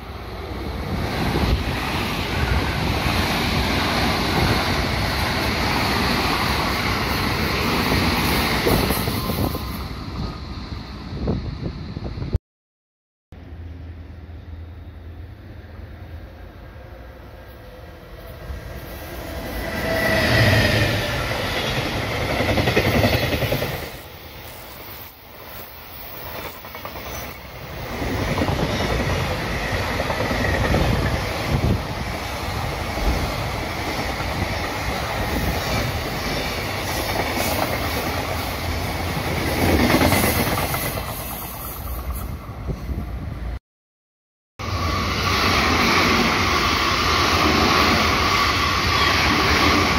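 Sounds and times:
train wheels rumbling on rails: 0.0 - 10.5, 17.6 - 43.4
electric locomotive passing: 0.0 - 12.2, 13.4 - 43.6, 44.6 - 49.9.

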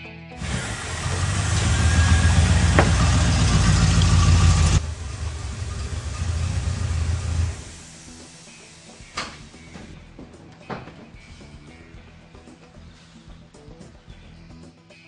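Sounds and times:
car engine idling: 0.4 - 8.1.

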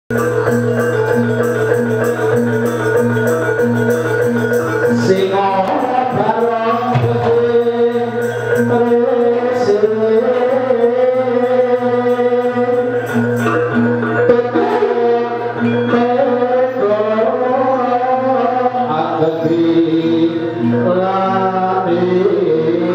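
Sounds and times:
gamelan ensemble playing: 0.1 - 22.9
person singing: 4.8 - 22.9.

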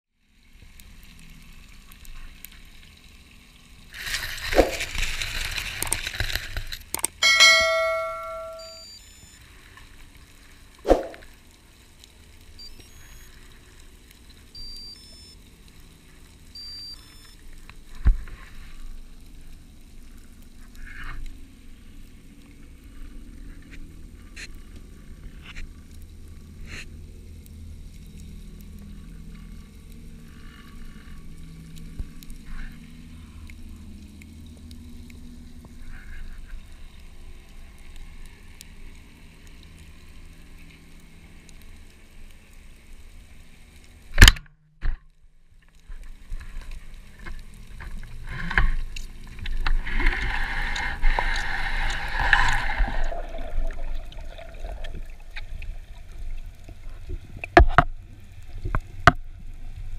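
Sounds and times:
underwater rumble of water: 0.2 - 7.0, 8.4 - 44.2, 45.1 - 59.9
sharp loud crack: 10.9 - 11.2
rushing gurgling water: 47.1 - 59.7.

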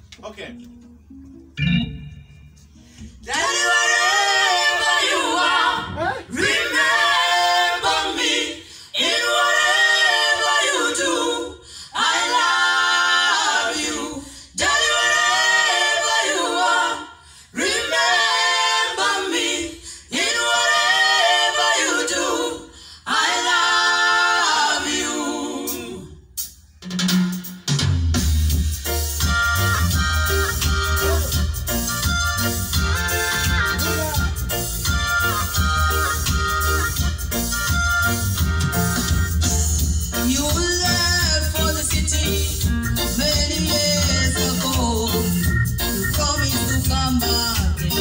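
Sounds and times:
vocal group singing in harmony: 2.9 - 26.3, 39.0 - 48.0.

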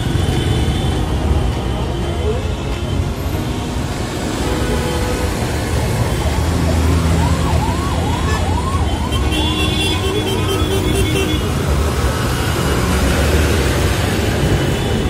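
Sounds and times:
heavy traffic rumble: 0.0 - 15.0
siren sweeping up and down: 6.1 - 10.2.

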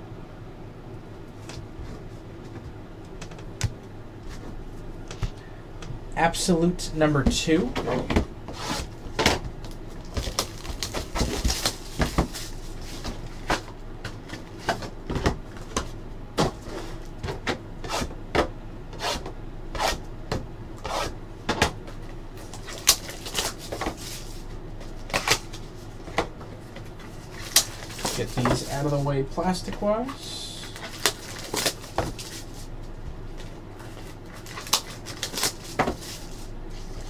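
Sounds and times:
cardboard boxes and packs handled: 7.6 - 17.6, 22.4 - 37.0.

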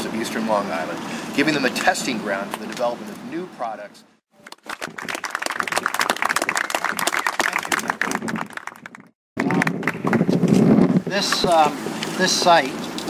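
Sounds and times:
audience applauding: 4.4 - 10.2.

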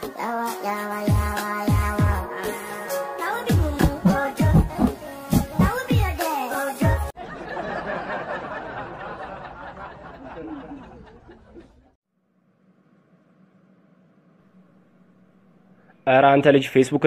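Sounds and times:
song with singing: 0.0 - 7.1
people laughing: 7.2 - 12.0.

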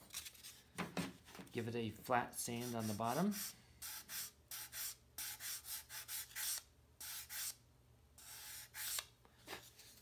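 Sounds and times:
sanding block rubbing wood: 2.6 - 7.6.

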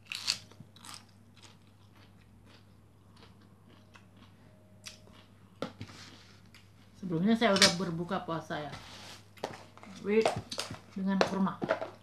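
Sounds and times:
person chewing crunchy food: 0.0 - 6.9.

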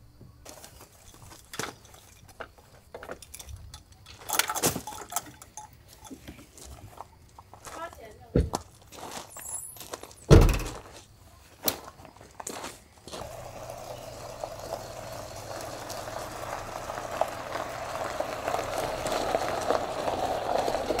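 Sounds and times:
tyres crunching over gravel: 0.4 - 21.0
car door thump: 10.3 - 10.8
car engine running: 13.2 - 21.0.

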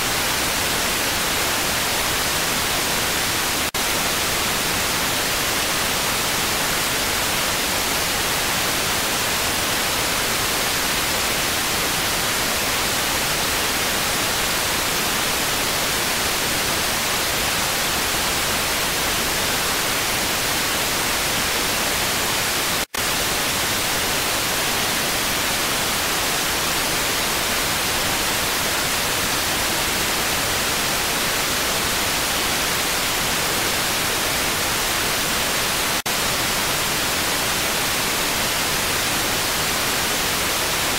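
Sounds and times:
steady static hiss: 0.0 - 40.9.

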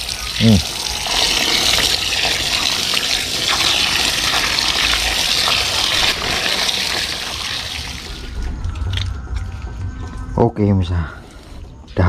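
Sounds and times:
running water gushing: 0.0 - 10.1.

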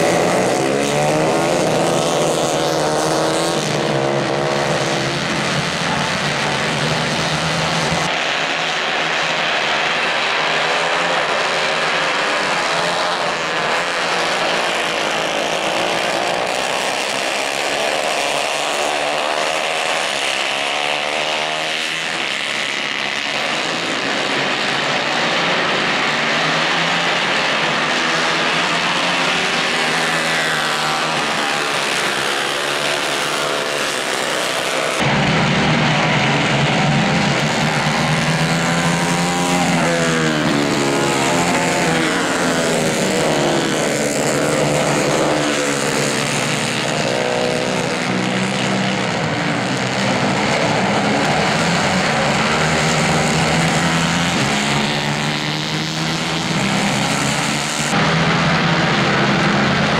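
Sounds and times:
racing kart engines revving: 0.0 - 59.9.

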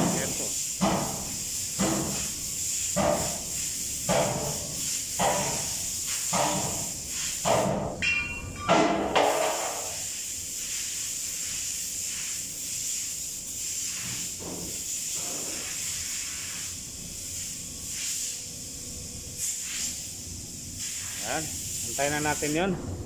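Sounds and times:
compressed air blow gun blasts: 0.0 - 7.9, 19.4 - 20.1
steady high hiss: 0.0 - 23.0.

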